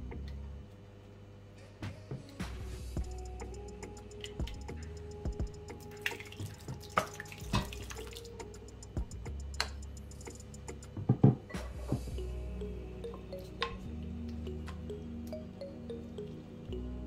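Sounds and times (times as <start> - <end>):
thick liquid dripping and splatting: 5.9 - 8.3.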